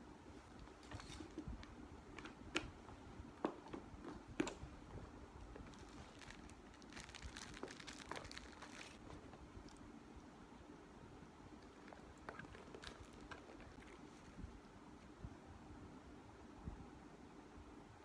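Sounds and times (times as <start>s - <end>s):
fabric and leather rustling: 0.3s - 9.5s, 11.8s - 14.6s.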